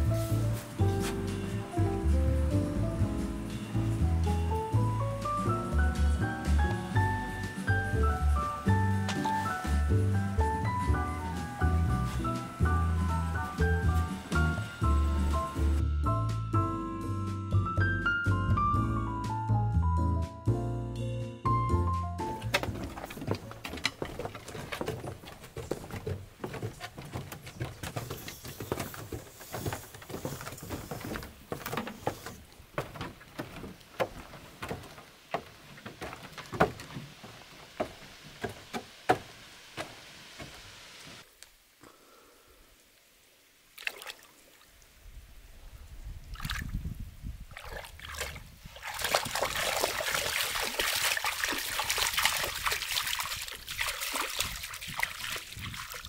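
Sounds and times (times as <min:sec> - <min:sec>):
sharp knocks and clicks: 0:22.4 - 0:37.1
dog splashing through water: 0:47.5 - 0:56.0.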